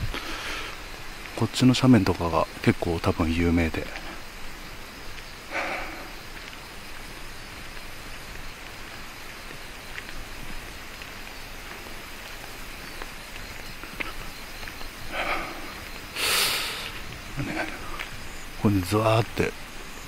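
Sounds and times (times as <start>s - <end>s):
insects calling: 0.0s - 20.0s
faint clicks: 5.1s - 18.4s.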